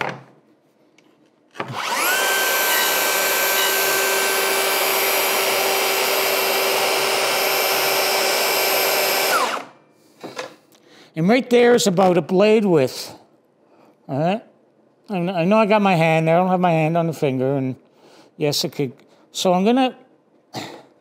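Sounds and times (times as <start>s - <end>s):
track saw motor whining: 1.6s - 9.8s.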